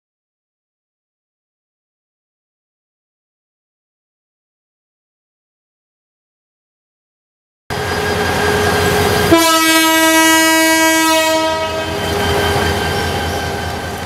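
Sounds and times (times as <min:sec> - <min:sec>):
train rumble: 0:07.7 - 0:14.0
locomotive horn: 0:07.8 - 0:13.6.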